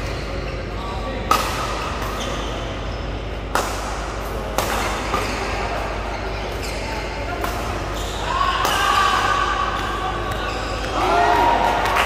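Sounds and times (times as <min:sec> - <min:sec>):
background noise: 0:00.0 - 0:12.0
racket hitting shuttlecock: 0:01.3 - 0:02.2, 0:03.4 - 0:05.6, 0:07.3 - 0:11.0.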